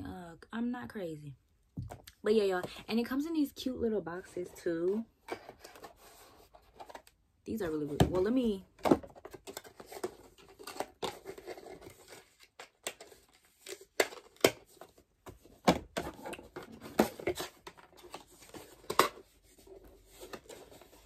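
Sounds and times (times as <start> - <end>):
packaging scraping and rustling: 9.2 - 15.0.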